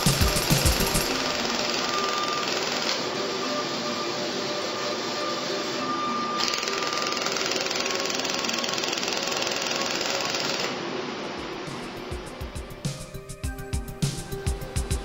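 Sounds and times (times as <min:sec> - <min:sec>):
laser welder ticking pulses: 0:00.0 - 0:03.3, 0:06.3 - 0:10.8.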